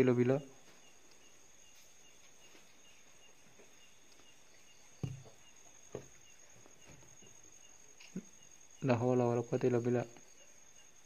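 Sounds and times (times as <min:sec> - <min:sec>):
night insects trilling: 0:00.0 - 0:11.0
dull thumps: 0:05.0 - 0:07.4.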